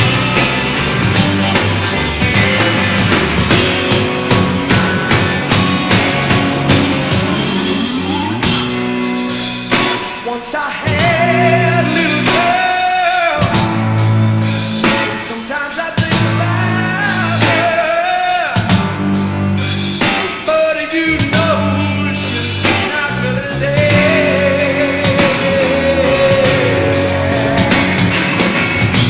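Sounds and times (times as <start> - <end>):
rock band playing: 0.0 - 29.0
man singing: 10.2 - 13.7, 15.1 - 18.8, 20.2 - 28.1.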